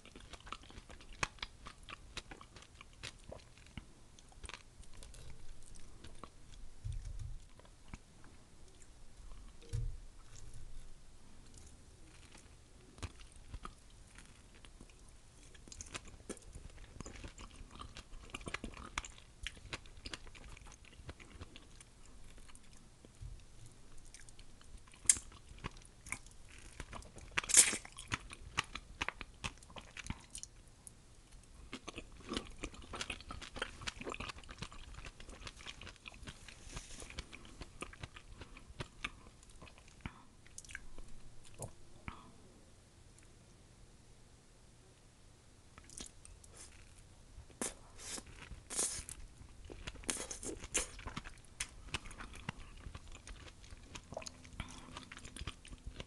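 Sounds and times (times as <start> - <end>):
biting and chewing fruit: 11.5 - 30.5, 31.7 - 41.8, 45.8 - 56.0.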